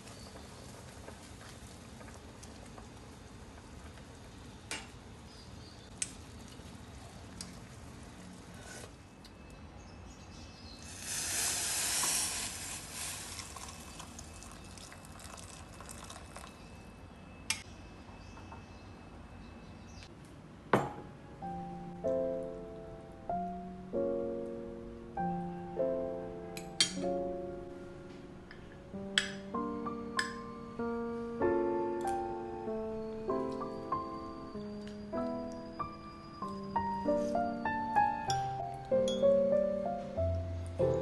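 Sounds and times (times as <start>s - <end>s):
soup bubbling: 10.8s - 16.6s
soup pouring into bowl: 10.8s - 16.6s.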